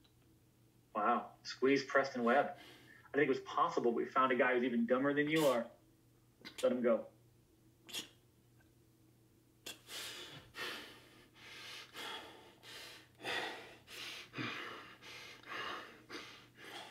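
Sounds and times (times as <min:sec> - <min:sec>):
man gasping and breathing hard: 0:09.7 - 0:16.9.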